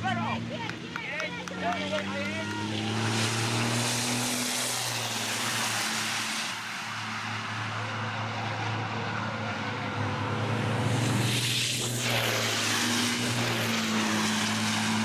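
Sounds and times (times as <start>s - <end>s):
diesel race truck engines droning: 0.0s - 15.0s
high rushing noise: 10.4s - 15.0s.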